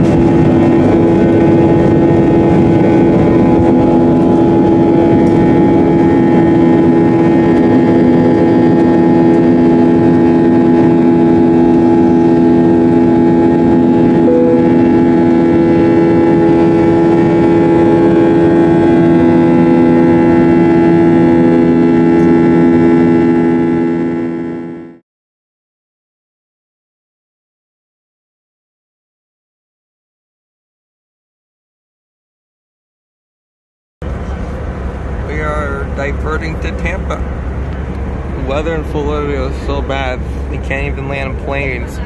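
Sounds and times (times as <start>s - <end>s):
airliner cabin drone: 0.0s - 25.0s, 34.0s - 42.0s.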